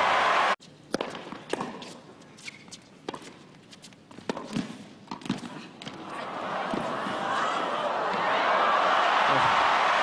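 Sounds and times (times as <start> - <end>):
crowd applause: 6.3 - 10.0.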